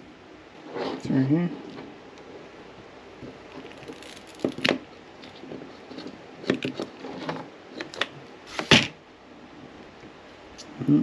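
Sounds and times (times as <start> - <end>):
wire handling noise: 3.2 - 9.0.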